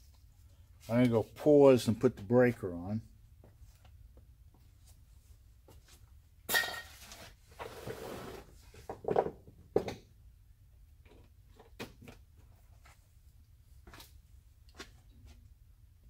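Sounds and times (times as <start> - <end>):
sharp metal clanks: 6.5 - 6.9
objects knocking and clattering: 8.8 - 10.1.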